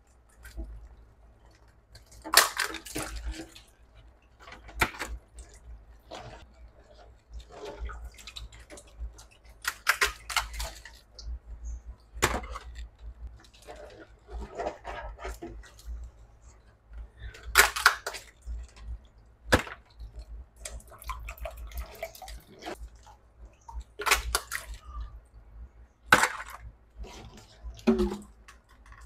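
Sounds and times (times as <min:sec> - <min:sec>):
water sloshing: 0:00.0 - 0:29.0.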